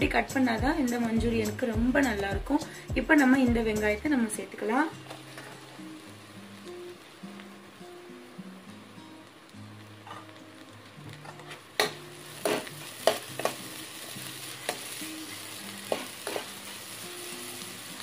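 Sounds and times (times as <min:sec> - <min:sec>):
onion and garlic sizzling in oil: 0:00.0 - 0:18.0
steel spoon scraping a pan: 0:10.0 - 0:10.4, 0:11.2 - 0:13.6, 0:14.4 - 0:16.8.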